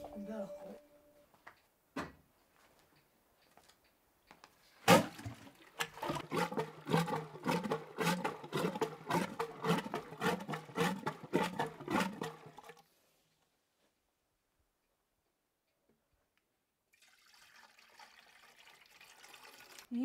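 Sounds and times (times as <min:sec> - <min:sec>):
plunger churning sloshing liquid: 0:04.9 - 0:12.8.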